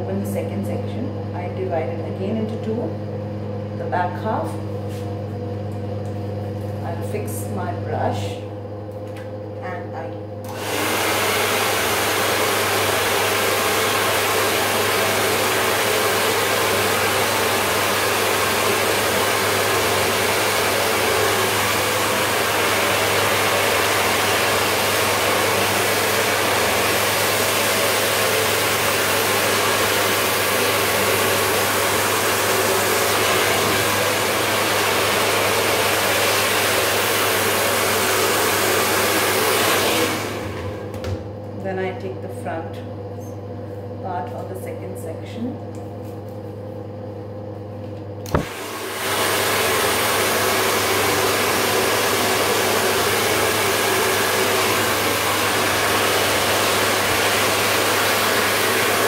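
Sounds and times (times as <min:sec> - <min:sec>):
hair dryer blowing: 0:10.4 - 0:41.2, 0:48.2 - 0:59.0
hair dryer switching off: 0:10.4 - 0:41.3, 0:48.2 - 0:59.0.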